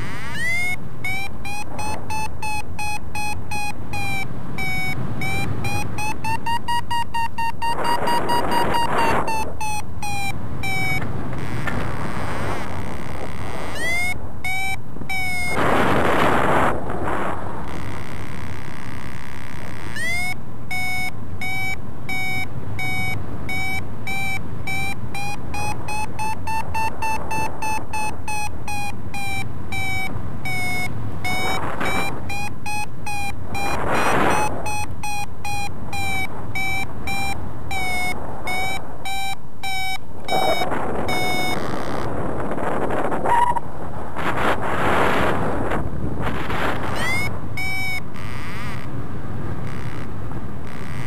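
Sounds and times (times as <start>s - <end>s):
variometer beeping fast: 0.0s - 43.6s, 44.2s - 51.0s
wind rushing over microphone: 7.5s - 20.0s, 22.1s - 39.3s, 39.9s - 51.0s.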